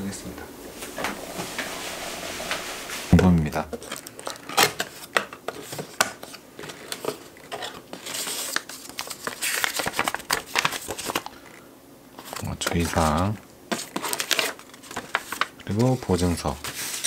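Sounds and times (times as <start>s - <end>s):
paper leaflets rustling: 0.7s - 11.3s, 12.2s - 17.0s
cardboard box flaps scraping: 0.8s - 3.3s.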